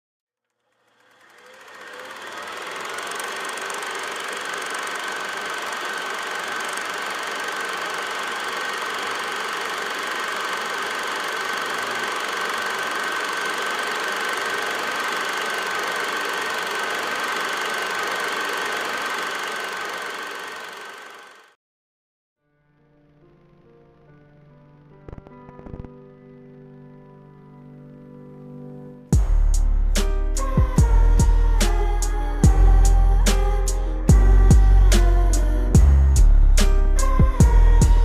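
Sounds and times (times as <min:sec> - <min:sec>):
film projector clatter and whine: 0:00.4 - 0:21.6, 0:31.2 - 0:38.0.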